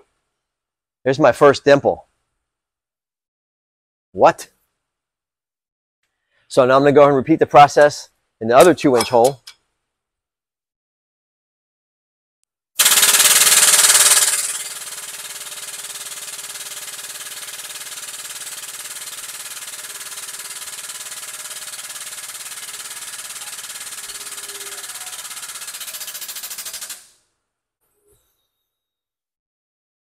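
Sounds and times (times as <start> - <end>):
pneumatic pump chattering: 12.8 - 27.1.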